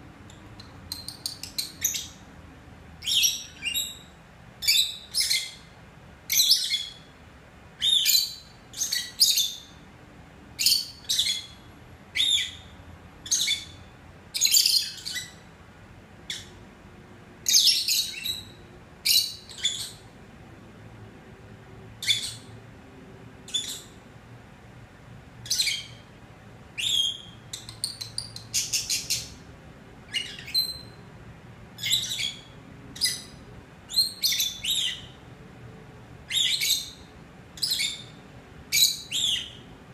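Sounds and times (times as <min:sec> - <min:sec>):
lovebirds chirping: 0:00.3 - 0:02.3, 0:03.0 - 0:07.1, 0:07.8 - 0:09.8, 0:10.6 - 0:15.5, 0:17.4 - 0:20.1, 0:22.0 - 0:22.6, 0:23.5 - 0:24.0, 0:25.4 - 0:26.1, 0:26.8 - 0:29.5, 0:30.1 - 0:31.0, 0:31.8 - 0:35.2, 0:36.3 - 0:39.7.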